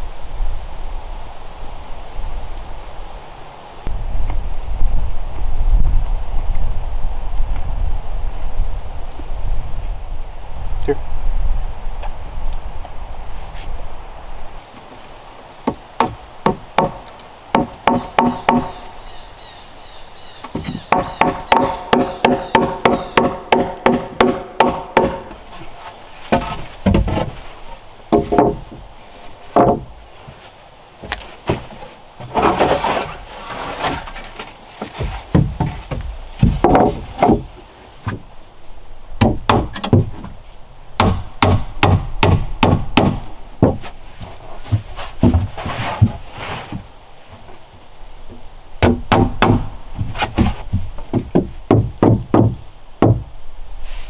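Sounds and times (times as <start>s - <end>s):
hammer driving nails into wood: 17.6s - 18.8s, 20.6s - 25.4s
heavy deep thuds: 34.9s - 38.3s, 48.8s - 53.4s.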